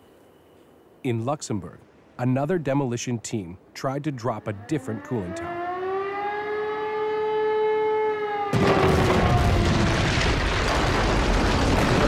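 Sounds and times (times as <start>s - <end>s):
warning siren: 4.2s - 10.2s
loud explosion blast: 8.5s - 12.0s
rumble with crackling: 8.6s - 12.0s.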